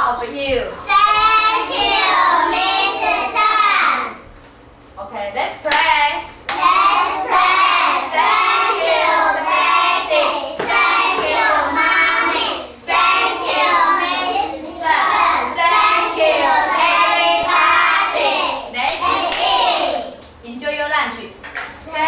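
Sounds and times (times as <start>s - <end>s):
sharp claps: 5.7s - 5.9s, 6.5s - 7.6s, 18.9s - 19.6s.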